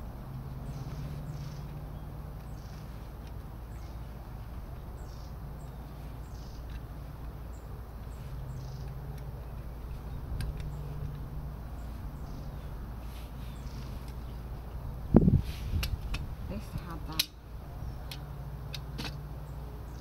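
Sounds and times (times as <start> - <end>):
steady low rumble: 0.0 - 20.0
bird chirping: 0.6 - 15.0, 16.8 - 18.3.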